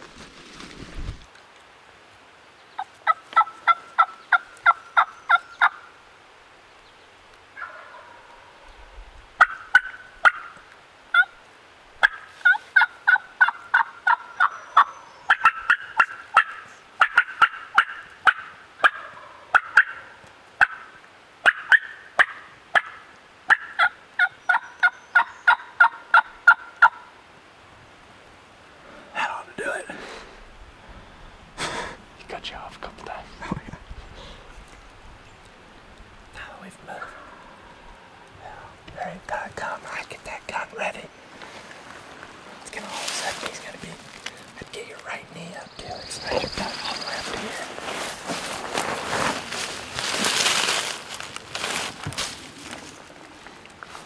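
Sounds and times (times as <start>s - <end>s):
turkey yelping: 2.8s - 5.8s, 7.6s - 8.4s, 9.4s - 11.4s, 12.0s - 27.1s.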